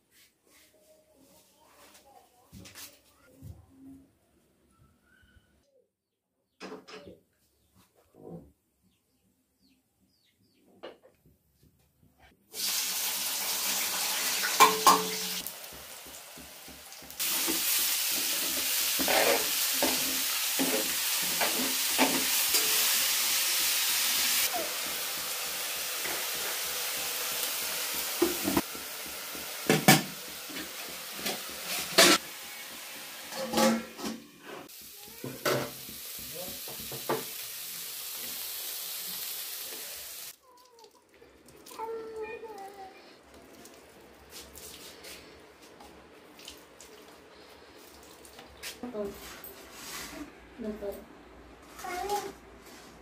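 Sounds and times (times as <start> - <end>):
leaves sizzling in a pan: 12.5 - 33.8, 34.5 - 40.4
metal ladle knocking on pan: 14.6 - 15.3.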